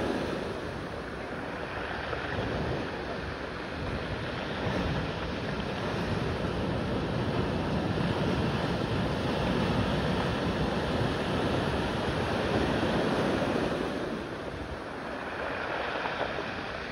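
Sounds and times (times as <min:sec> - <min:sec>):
steady rushing noise: 0:00.0 - 0:16.9.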